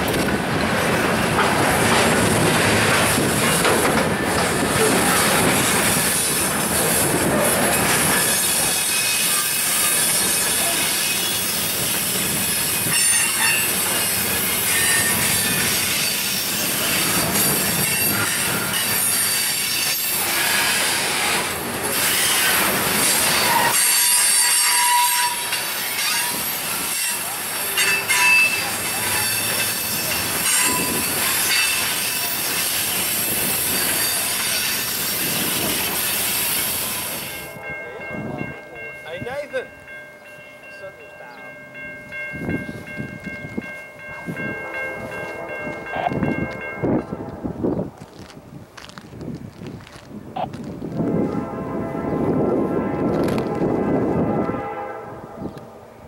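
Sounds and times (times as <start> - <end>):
wheels clicking over rail joints: 0.0 - 10.8
steel wheels squealing on rails: 0.1 - 39.5.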